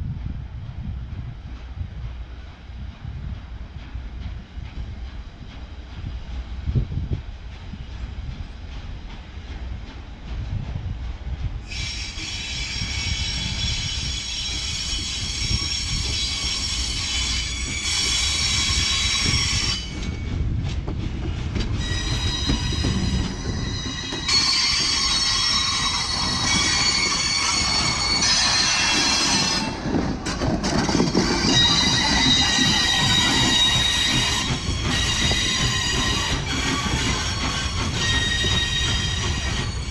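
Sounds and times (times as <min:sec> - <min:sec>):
steam locomotive rumble: 0:00.0 - 0:39.9
wheel flanges squealing: 0:21.8 - 0:39.9.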